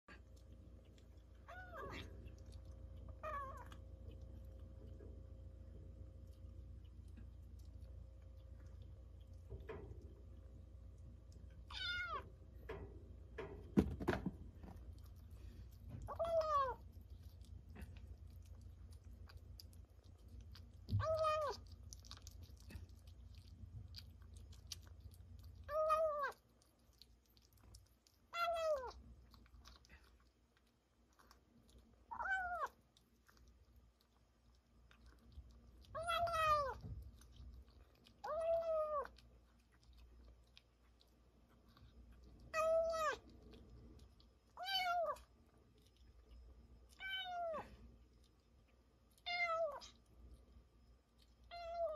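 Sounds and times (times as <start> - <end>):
kitten chewing food: 0.0 - 51.9
kitten mewing: 20.9 - 21.7, 32.1 - 32.8, 35.9 - 36.9.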